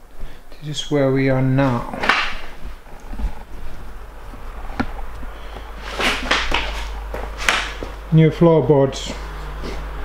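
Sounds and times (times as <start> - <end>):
steady low hum: 0.0 - 10.0
footsteps on wooden floorboards: 5.9 - 8.0.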